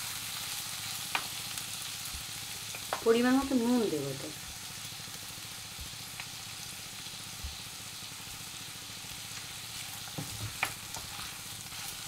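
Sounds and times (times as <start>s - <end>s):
chicken sizzling in oil: 0.0s - 12.0s
spatula scraping wok: 9.1s - 12.0s.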